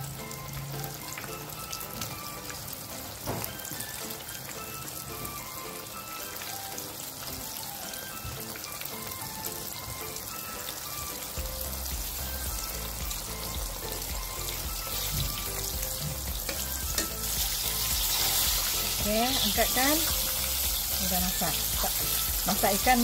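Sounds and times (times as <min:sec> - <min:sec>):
background music with melodic notes: 0:00.0 - 0:23.0
fish deep-frying in oil: 0:00.0 - 0:23.0
low bass beat: 0:11.4 - 0:23.0.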